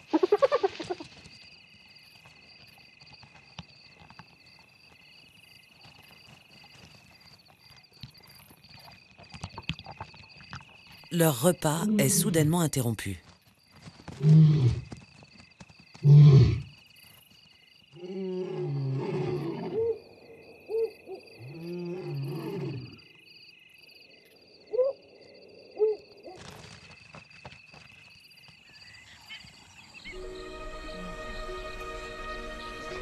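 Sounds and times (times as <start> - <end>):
insects chirping: 0.0 - 33.0
large carnivores growling roars: 18.0 - 19.8, 21.4 - 23.0
music: 30.1 - 33.0.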